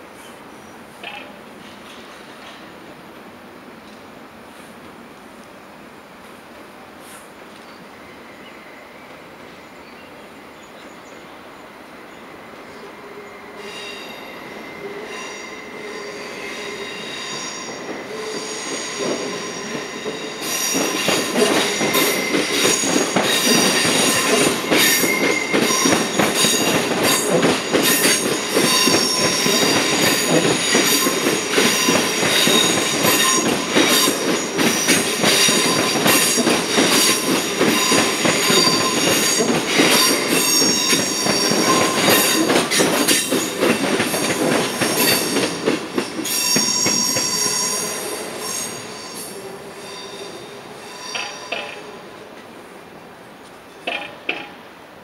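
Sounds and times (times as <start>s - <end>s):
train wheels squealing: 12.0s - 52.0s
train wheels clattering over rails: 16.7s - 49.0s, 53.8s - 54.6s.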